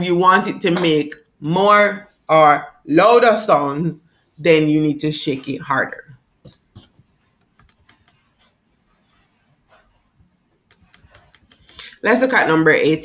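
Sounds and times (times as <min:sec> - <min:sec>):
computer controls clicking: 0:06.5 - 0:08.2, 0:10.6 - 0:11.8.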